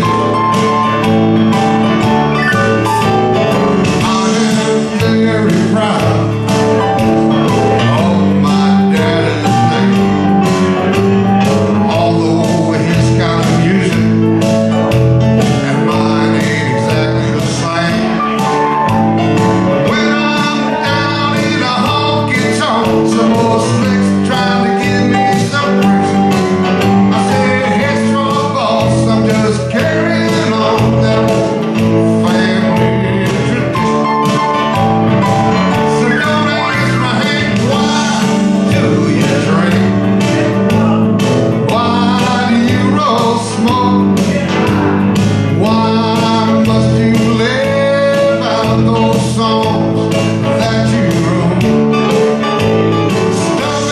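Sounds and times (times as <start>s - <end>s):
guitar strumming: 0.0s - 53.9s
man singing into a microphone: 2.3s - 18.9s, 19.6s - 34.6s, 35.5s - 53.9s.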